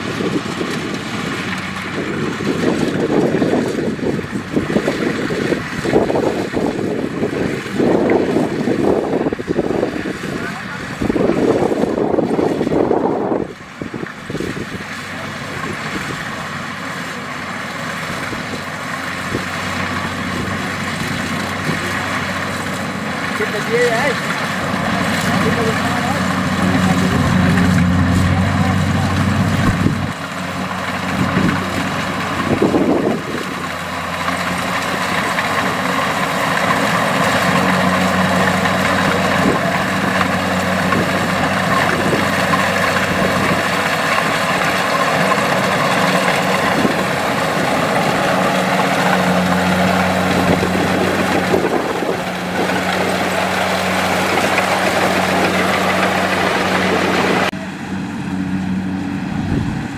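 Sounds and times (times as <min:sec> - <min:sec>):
diesel engine drone: 0:00.0 - 0:59.9
whirring cutter machinery: 0:16.2 - 0:59.9.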